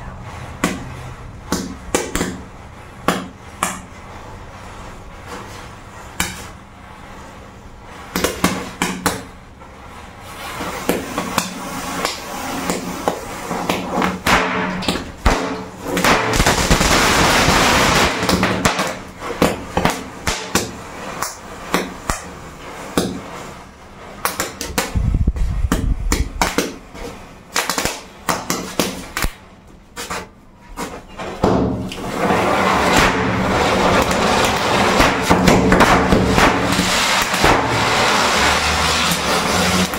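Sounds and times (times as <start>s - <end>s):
fountain firework spraying sparks: 9.8s - 24.9s, 32.0s - 39.9s
matches flaring and crackling: 10.3s - 25.6s, 31.9s - 39.9s.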